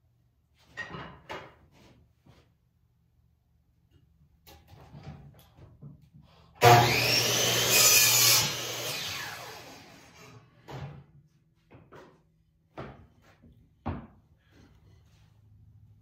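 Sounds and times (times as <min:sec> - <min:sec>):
miter saw whining and cutting wood: 0:06.6 - 0:10.4.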